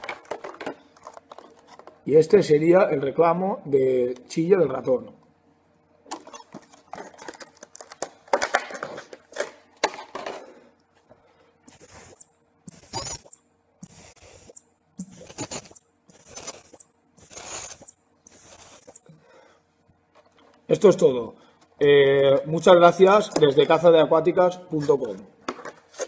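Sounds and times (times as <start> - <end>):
plastic packaging rustling: 0.0 - 2.1, 6.2 - 10.6
high-pitched predator call squeaks: 11.7 - 19.1.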